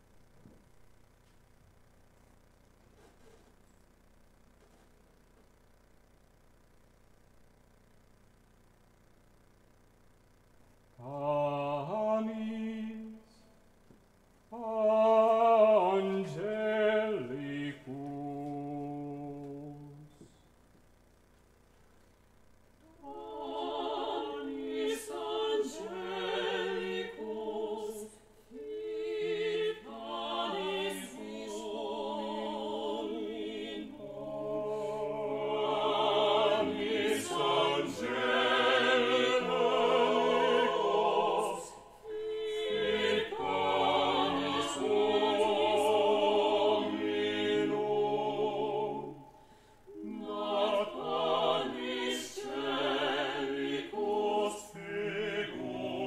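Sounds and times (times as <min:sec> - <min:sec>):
vocal ensemble singing a cappella: 0:11.0 - 0:13.6, 0:14.5 - 0:20.3, 0:22.9 - 0:56.0
singers breathing: 0:49.3 - 0:49.9.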